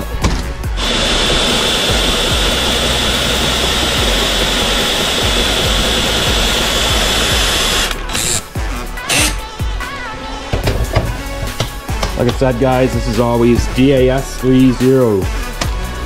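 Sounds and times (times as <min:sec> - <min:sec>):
compressed air hissing from air gun: 0:00.8 - 0:08.4.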